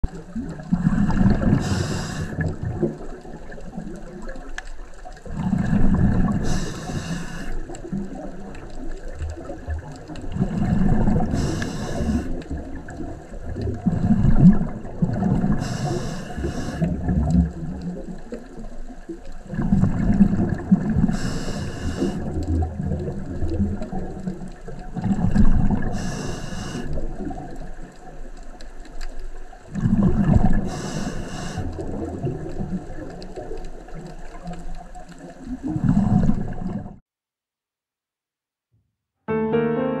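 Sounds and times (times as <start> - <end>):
exhaled air bubbling: 0.0 - 28.0, 29.7 - 37.0
diver breathing through regulator: 1.0 - 2.6, 5.8 - 7.7, 11.2 - 12.4, 15.5 - 16.9, 21.1 - 22.3, 25.9 - 27.0, 30.6 - 31.8.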